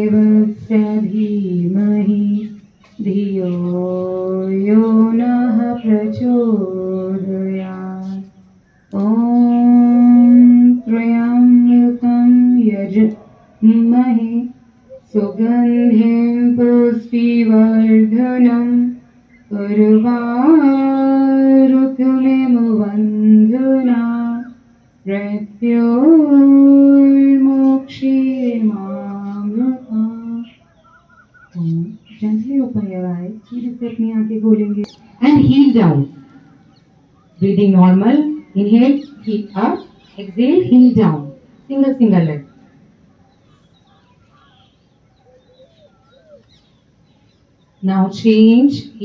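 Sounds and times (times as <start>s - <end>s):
person chanting a prayer: 0.0s - 30.6s.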